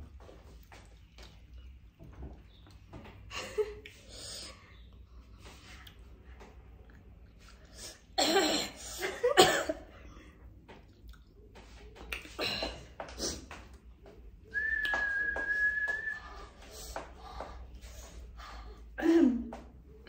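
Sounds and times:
whistled note: 14.5 - 16.4.

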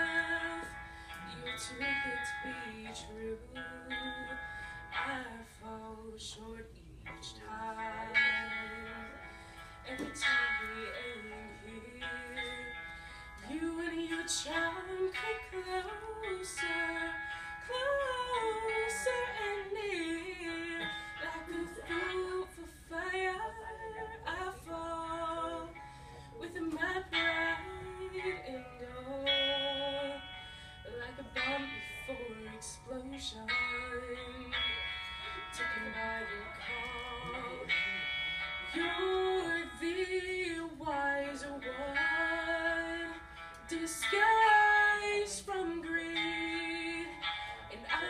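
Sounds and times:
woman singing into a microphone: 0.0 - 48.0.

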